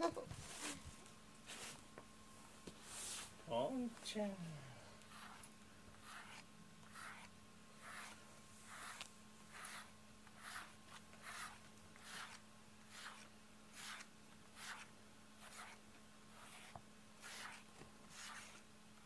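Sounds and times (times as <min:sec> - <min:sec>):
brush stroking through fur: 0:02.8 - 0:03.4, 0:05.1 - 0:18.6.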